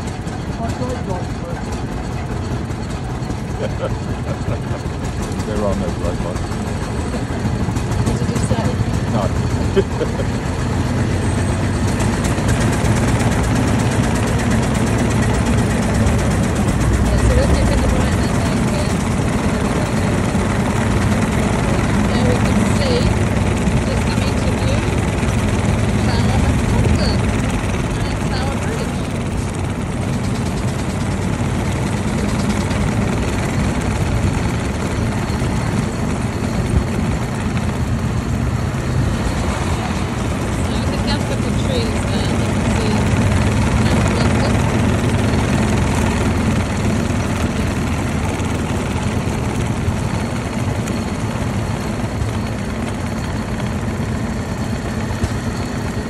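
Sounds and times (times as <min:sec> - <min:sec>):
road and traffic noise: 0:00.0 - 0:56.0
single-cylinder engine running: 0:00.0 - 0:56.0.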